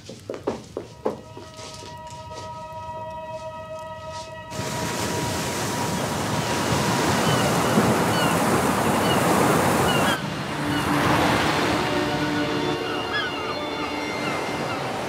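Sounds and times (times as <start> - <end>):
wind: 0.0 - 15.0
sea surf: 4.1 - 15.0
high bird calls: 5.9 - 15.0.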